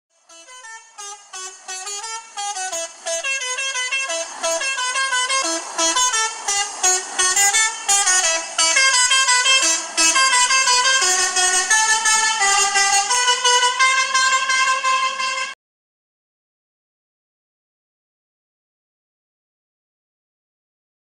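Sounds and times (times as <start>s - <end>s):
bus musical horn tune: 0.1s - 15.6s.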